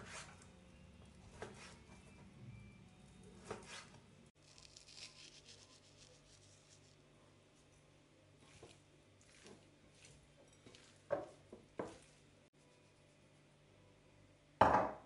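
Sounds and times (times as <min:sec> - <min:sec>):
seasoning pattering: 0:04.4 - 0:07.7, 0:08.4 - 0:12.4.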